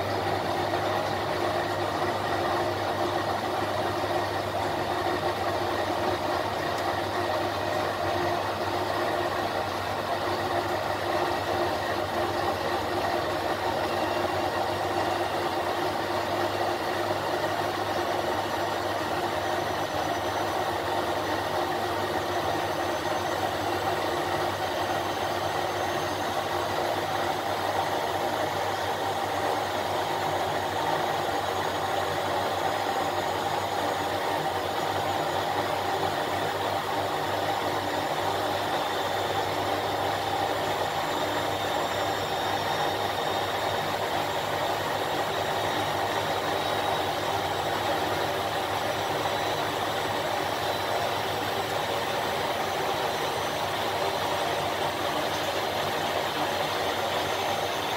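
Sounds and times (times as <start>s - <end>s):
washing machine humming: 0.0s - 57.9s.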